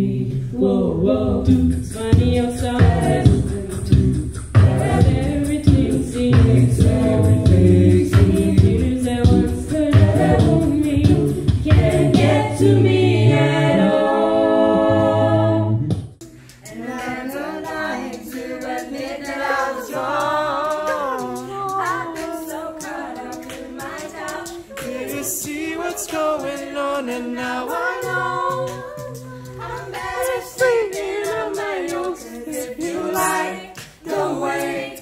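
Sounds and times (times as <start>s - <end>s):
deep vocal bass line: 0.0s - 16.2s, 24.9s - 31.4s
a cappella group singing: 0.0s - 35.0s
gliding vocal melody: 0.0s - 35.0s.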